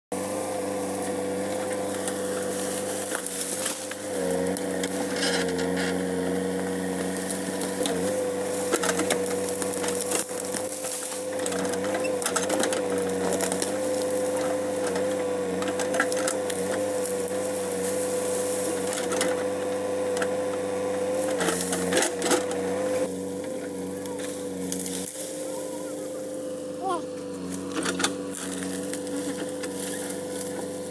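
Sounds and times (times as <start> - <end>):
backhoe diesel engine running: 0.1 - 30.9.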